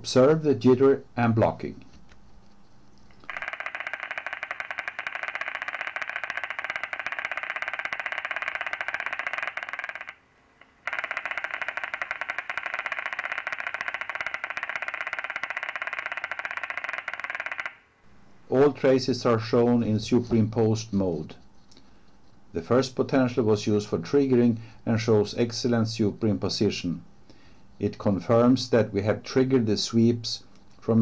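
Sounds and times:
fast crackle of sharp clicks: 3.0 - 17.8.

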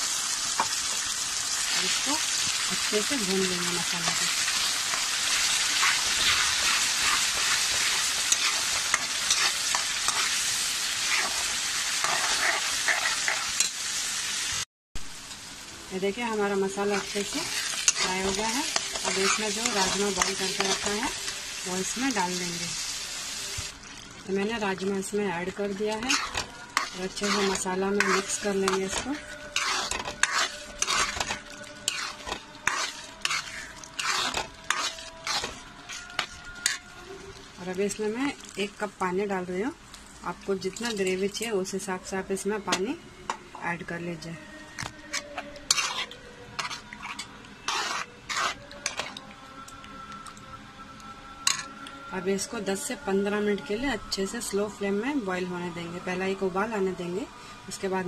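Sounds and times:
paste sizzling in hot oil: 0.0 - 39.4, 45.1 - 49.2
spatula scraping pan: 4.0 - 13.7, 16.8 - 21.3, 25.6 - 36.9, 45.0 - 49.2.

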